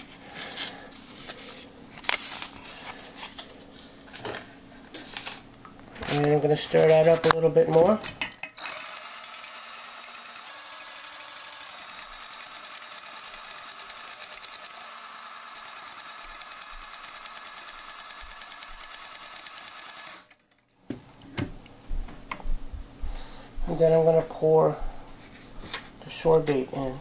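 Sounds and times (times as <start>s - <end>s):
electric drill running: 8.5s - 20.5s.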